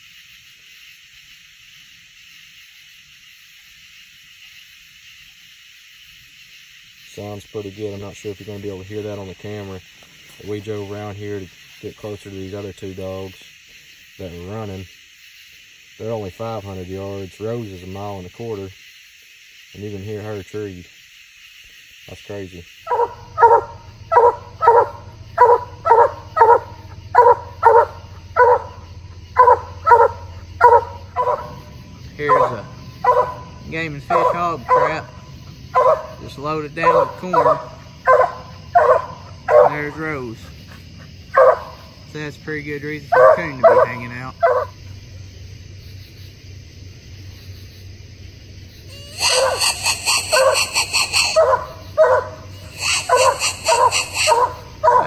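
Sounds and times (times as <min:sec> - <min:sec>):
night insect chorus: 0:00.0 - 0:55.0
dog barking loudly: 0:22.9 - 0:36.2, 0:36.8 - 0:39.9, 0:41.3 - 0:41.9, 0:43.1 - 0:44.8, 0:49.0 - 0:55.0
low wind rumble: 0:22.9 - 0:39.5.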